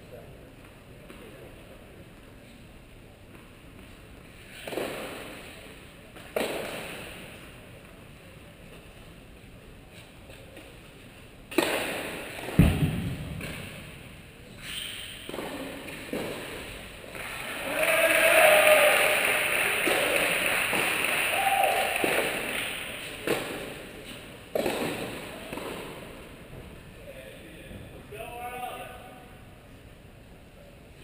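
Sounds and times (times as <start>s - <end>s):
tennis racket hitting ball: 4.5s - 5.6s, 6.2s - 7.3s, 11.5s - 14.2s, 15.2s - 17.2s, 22.0s - 26.1s
heavy low thud: 12.6s - 14.1s.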